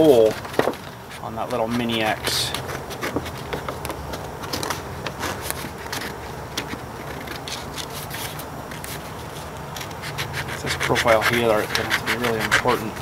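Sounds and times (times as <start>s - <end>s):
paper rustles: 0.0s - 13.0s
steady low hum: 0.0s - 13.0s
scissors snipping paper: 9.8s - 13.0s.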